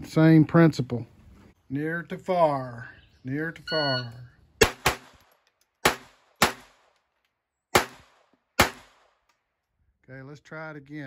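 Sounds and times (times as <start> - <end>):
pistol shots: 4.6 - 7.0, 7.7 - 9.2.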